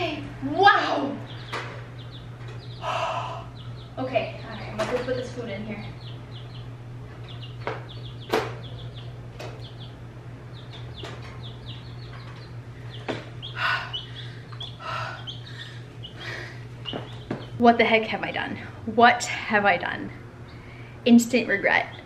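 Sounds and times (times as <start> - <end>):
chicks peeping: 0.8 - 18.0.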